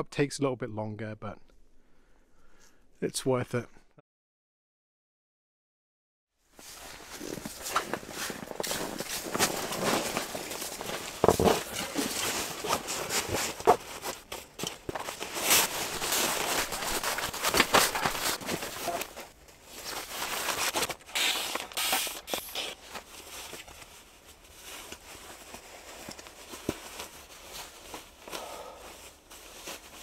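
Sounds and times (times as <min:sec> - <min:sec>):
rustling and scraping of gear: 0:06.5 - 0:30.0.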